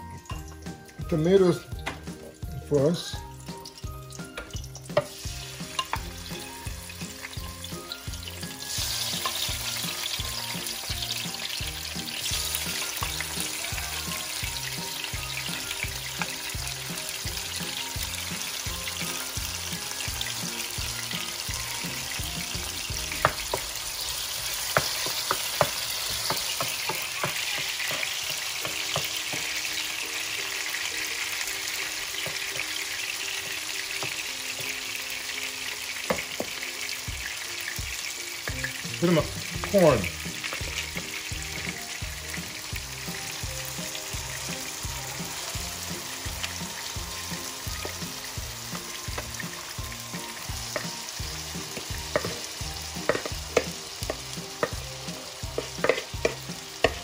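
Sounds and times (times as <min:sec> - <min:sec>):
tomatoes sizzling in hot oil: 0:00.0 - 0:57.0
wooden spoon knocking on pan: 0:04.4 - 0:07.4, 0:11.1 - 0:19.5, 0:20.1 - 0:23.8, 0:24.4 - 0:29.8, 0:32.1 - 0:32.8, 0:33.4 - 0:34.8, 0:36.0 - 0:57.0.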